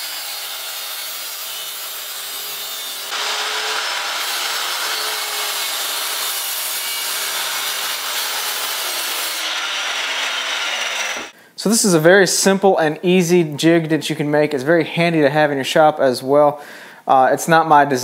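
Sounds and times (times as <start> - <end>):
circular saw cutting wood: 0.0 - 11.4.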